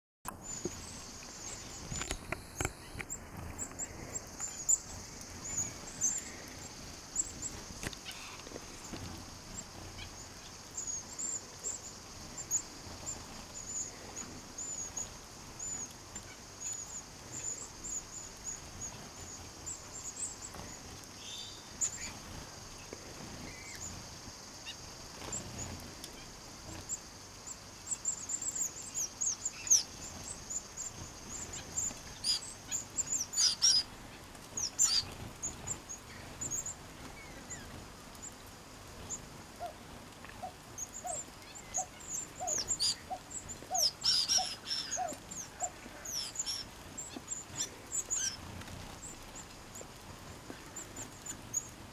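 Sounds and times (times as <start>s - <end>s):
finches chirping: 0.3s - 51.8s
steady high hiss: 0.3s - 51.9s
faint taps and flutters: 1.6s - 5.5s, 7.2s - 10.0s, 48.4s - 51.5s.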